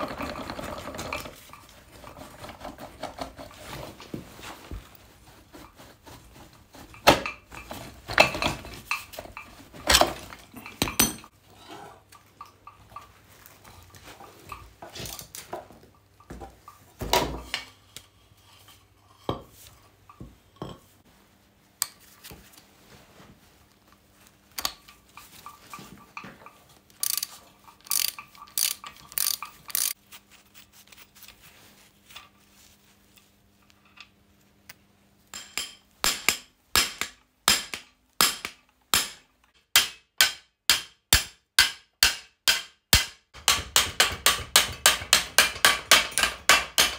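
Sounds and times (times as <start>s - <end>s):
metal parts and tools clinking: 0.0s - 3.2s, 7.0s - 11.4s, 24.6s - 31.2s.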